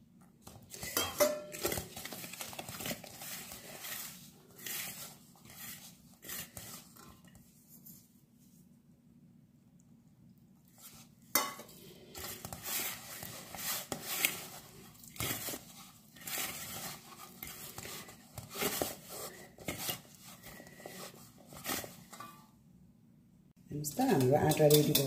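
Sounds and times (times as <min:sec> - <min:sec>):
dough scraping in metal bowl: 0:02.9 - 0:08.0, 0:12.2 - 0:22.4, 0:23.9 - 0:25.0.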